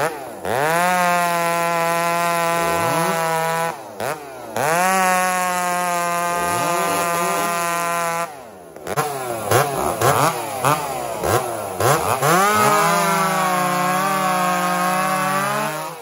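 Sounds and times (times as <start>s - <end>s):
chainsaw revving: 0.0s - 16.0s.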